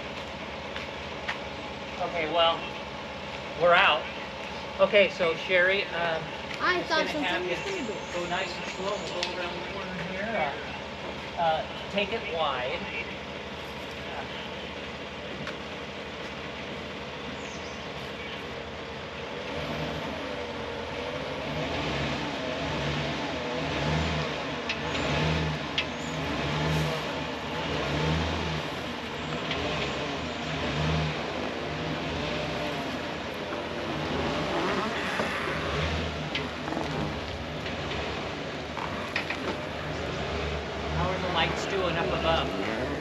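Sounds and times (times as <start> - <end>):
car engine running low: 0.0 - 43.0
rolling wheels rumble and creak: 0.0 - 43.0.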